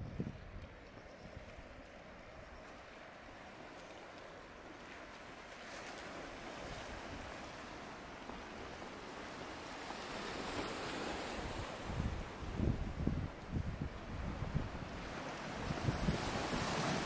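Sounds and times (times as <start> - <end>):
wind buffeting microphone: 0.0 - 2.6, 10.2 - 17.0
sea surf washing in: 6.1 - 17.0.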